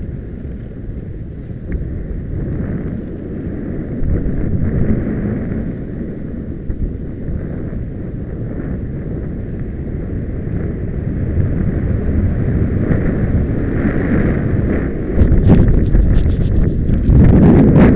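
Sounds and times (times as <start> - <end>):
wind rumbling on microphone: 0.0 - 17.9
skis sliding on snow: 12.6 - 17.4.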